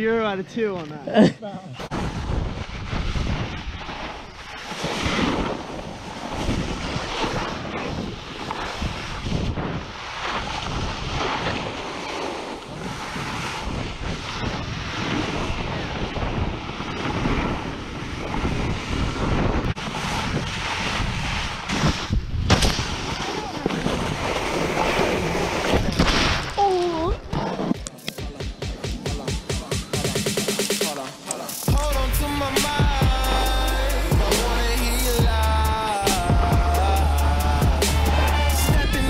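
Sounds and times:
snowboard scraping over snow: 0:01.8 - 0:26.3, 0:26.9 - 0:28.1
wind buffeting microphone: 0:01.8 - 0:27.7.

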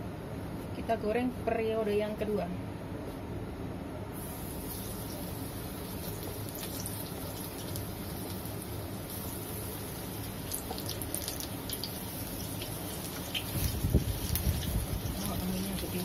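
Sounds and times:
crackles and pops of frying: 0:04.2 - 0:16.0
oil sizzling in a wok: 0:04.2 - 0:16.0.

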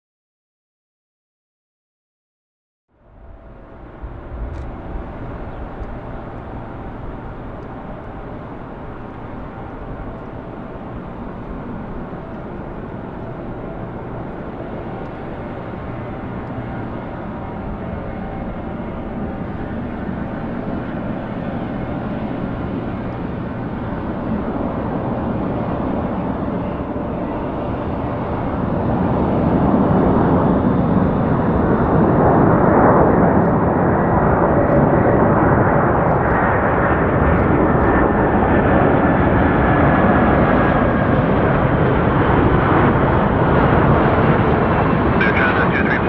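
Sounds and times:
faint high whine: 0:03.0 - 0:29.2
jet engine roar: 0:03.0 - 0:46.0.

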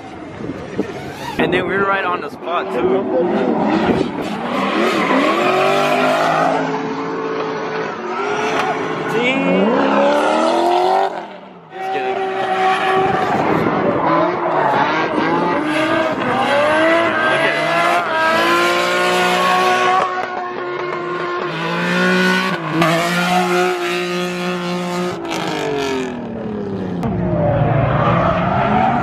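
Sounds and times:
car engines revving hard: 0:00.2 - 0:29.0
tyres squealing and skidding: 0:00.8 - 0:01.6, 0:03.6 - 0:07.2, 0:22.6 - 0:23.8, 0:27.3 - 0:29.0.

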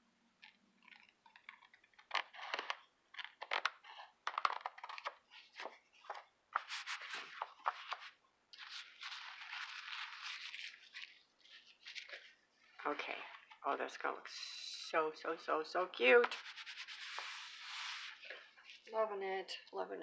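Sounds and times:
paper rustling: 0:00.4 - 0:13.6, 0:16.2 - 0:18.9.

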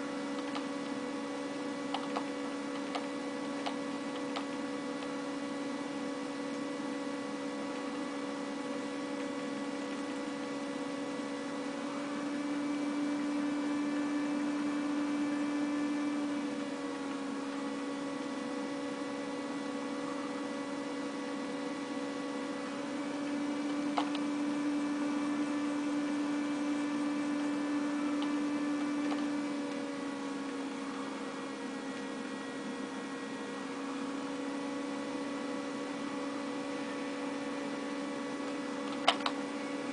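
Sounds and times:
electrical hum: 0:00.0 - 0:39.9.

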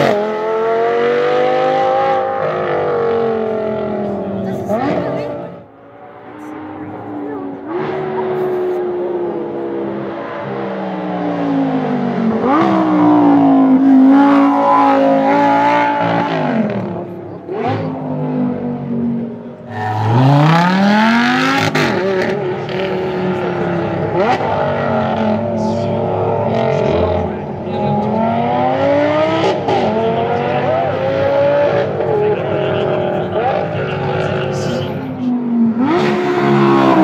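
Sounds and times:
sports car engine revving: 0:00.0 - 0:37.0.

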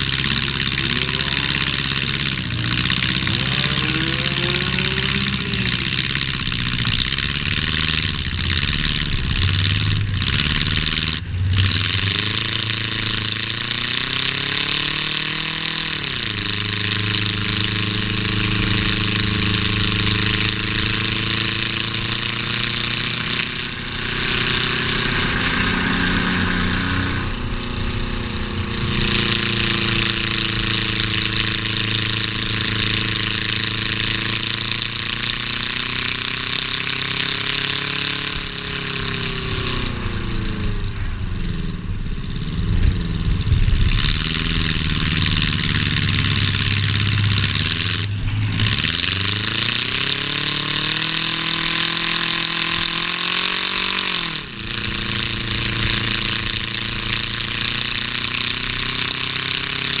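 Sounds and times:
race car engine running hard: 0:00.0 - 1:00.0
wind and road noise: 0:00.0 - 1:00.0.

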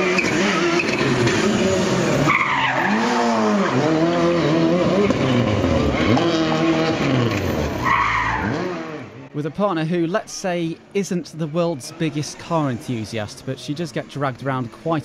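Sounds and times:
car engine revving: 0:00.0 - 0:09.3
tyres skidding on tarmac: 0:00.0 - 0:09.3.

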